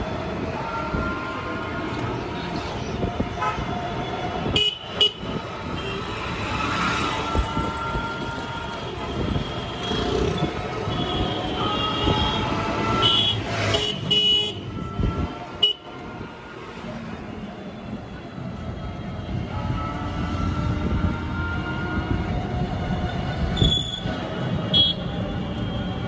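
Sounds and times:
vehicle horns tooting: 7.3 - 15.9, 23.5 - 25.2.

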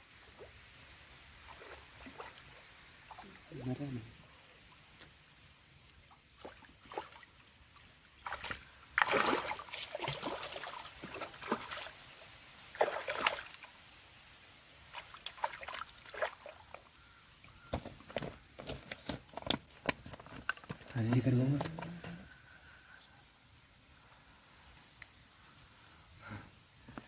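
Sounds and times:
fish splashing in water: 8.2 - 13.8, 14.9 - 16.8.

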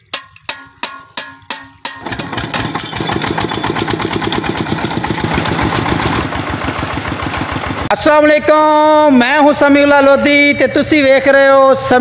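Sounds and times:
diesel engine chugging: 2.0 - 11.0.

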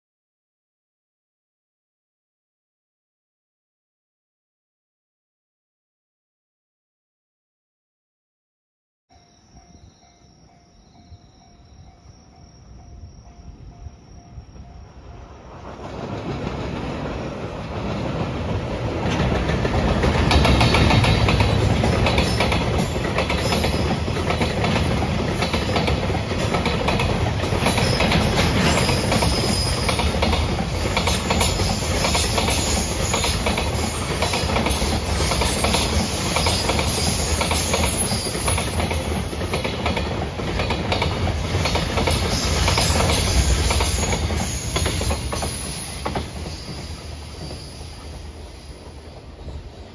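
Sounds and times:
crossing warning bell dinging: 9.1 - 15.6
train wheels clattering on rails: 14.6 - 49.9.

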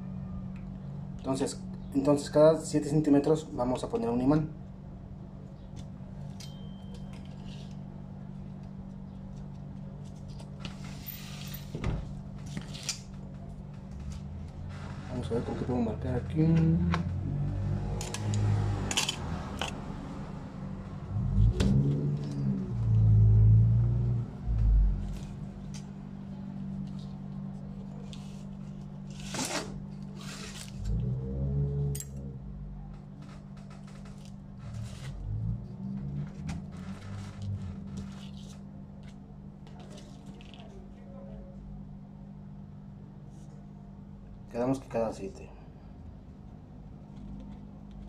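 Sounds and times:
steady low hum: 0.0 - 48.0
low rumble: 19.9 - 26.8.

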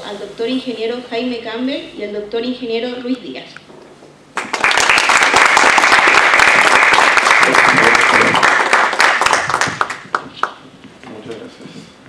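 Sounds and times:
audience applauding: 4.4 - 10.6.

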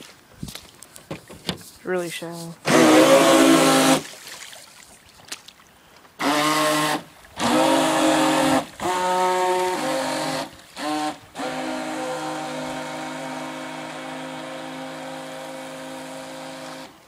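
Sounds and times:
model boat motor whining: 2.6 - 4.0, 6.2 - 17.0.

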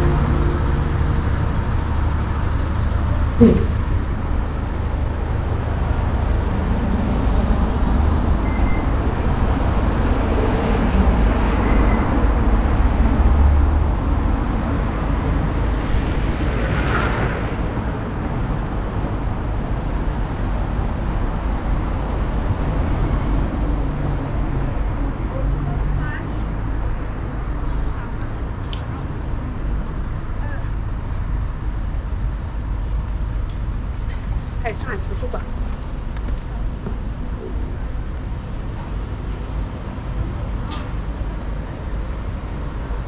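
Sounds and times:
passing vehicles rumble: 0.0 - 43.0
short sharp noise: 3.4 - 4.2.

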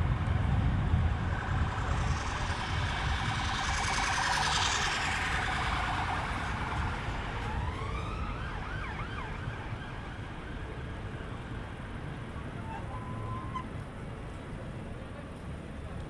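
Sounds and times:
vehicle passing close: 0.0 - 9.6
road traffic: 0.0 - 16.0
emergency siren wailing: 0.3 - 11.8.

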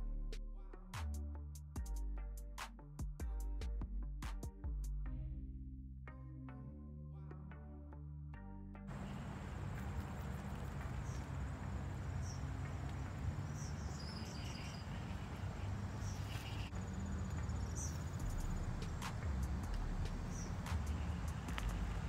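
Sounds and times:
insects trilling: 8.9 - 22.0
low rumble: 8.9 - 22.0.

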